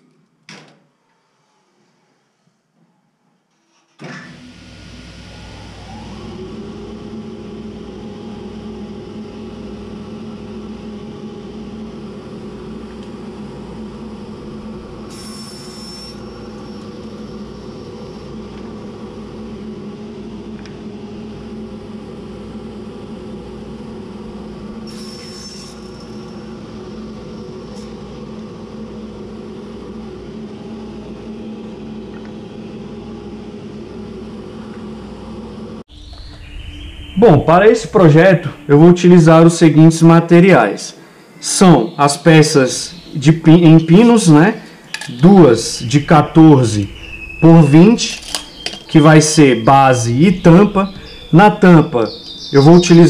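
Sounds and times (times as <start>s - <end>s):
saw blade whine cutting wood: 4.4s - 21.5s, 23.0s - 29.1s, 41.5s - 53.0s
table saw motor humming: 4.4s - 35.8s, 42.6s - 53.0s.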